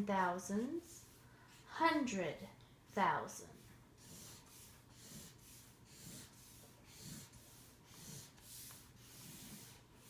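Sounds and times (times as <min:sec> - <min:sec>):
marker scratching on paper: 0:00.6 - 0:01.7, 0:03.4 - 0:10.0.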